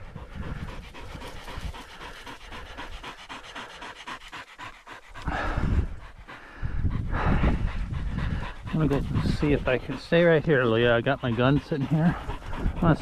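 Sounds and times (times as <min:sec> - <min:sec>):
dog panting fast: 0:00.0 - 0:13.0.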